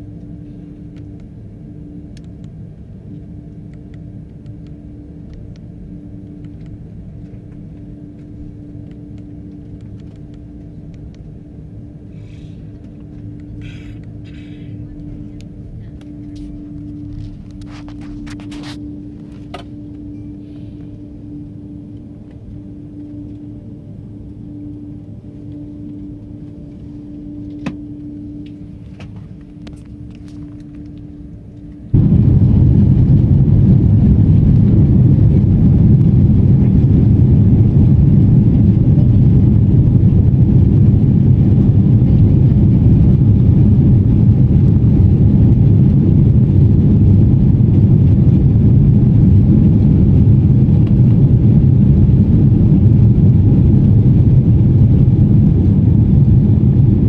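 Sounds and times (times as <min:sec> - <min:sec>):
faint steady tone: 0:00.0 - 0:32.3
airliner cabin hum: 0:00.0 - 0:57.0
jet engines and airflow rumbling: 0:00.0 - 0:57.0.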